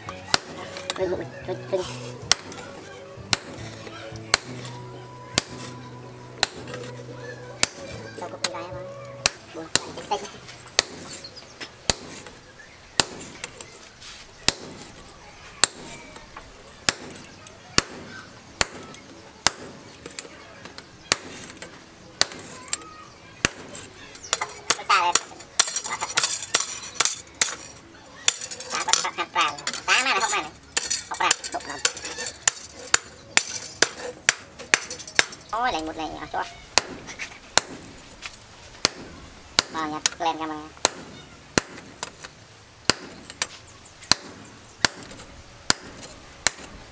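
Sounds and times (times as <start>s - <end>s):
hammer striking chisel on steel: 0.2s - 1.0s, 1.9s - 2.7s, 3.3s - 4.8s, 5.4s - 5.8s, 6.4s - 7.0s, 7.6s - 8.0s, 9.2s - 10.1s, 10.8s - 11.2s, 11.9s - 12.3s, 13.0s - 13.5s, 14.5s - 14.8s, 15.6s - 15.9s, 16.9s - 19.8s, 21.1s - 22.8s, 23.4s - 35.5s, 36.8s - 37.9s, 38.8s - 40.2s, 40.8s - 42.1s, 42.9s - 46.8s.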